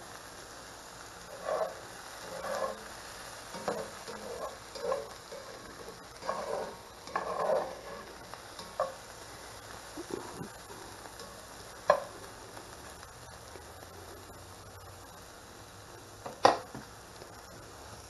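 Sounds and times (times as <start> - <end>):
vegetables sizzling in skillet: 0.0 - 18.0
metal utensil scraping pan: 1.3 - 9.1.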